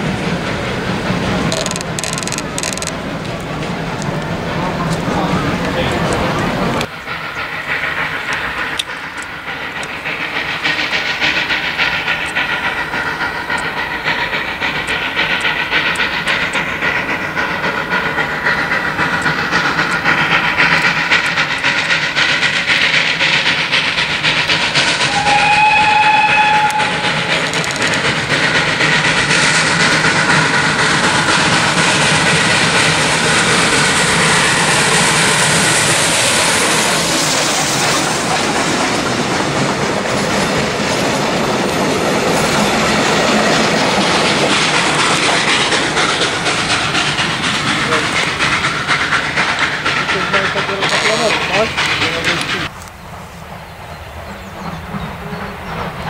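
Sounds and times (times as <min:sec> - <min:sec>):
steam locomotive running past: 0:00.0 - 0:56.0
steam whistle blast: 0:25.0 - 0:27.3.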